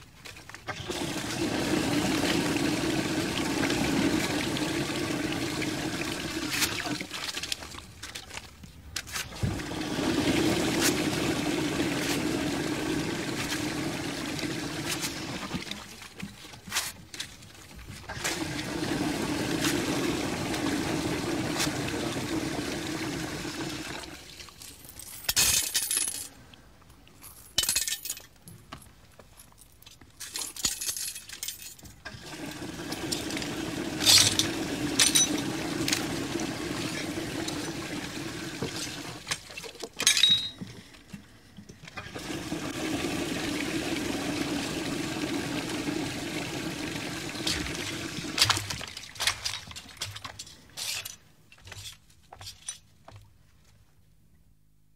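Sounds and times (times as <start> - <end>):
toilet flushing: 0.7 - 7.5, 9.4 - 15.8, 18.1 - 24.3, 32.0 - 39.5, 42.0 - 49.2
coins clinking and splashing: 24.4 - 26.3, 27.3 - 28.4, 30.2 - 31.8, 34.0 - 36.1, 39.6 - 40.6.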